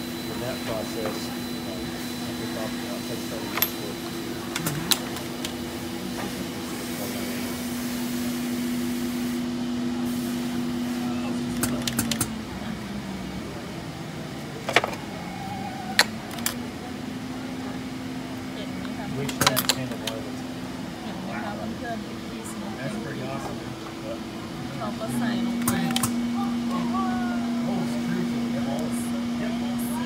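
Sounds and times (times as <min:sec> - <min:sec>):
sharp clicks and knocks: 0:11.6 - 0:12.3.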